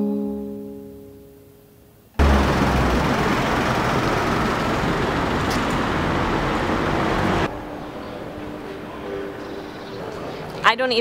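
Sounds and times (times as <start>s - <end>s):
quiet street background: 0.0s - 11.0s
passing vehicles rushing: 2.2s - 10.6s.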